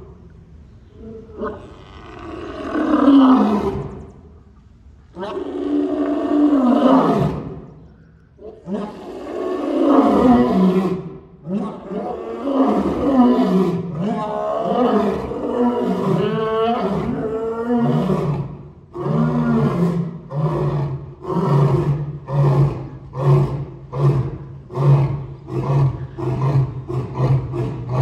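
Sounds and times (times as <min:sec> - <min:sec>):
lion roaring: 0:01.0 - 0:04.0, 0:05.2 - 0:07.6, 0:08.4 - 0:28.0
lion grunting: 0:19.0 - 0:28.0.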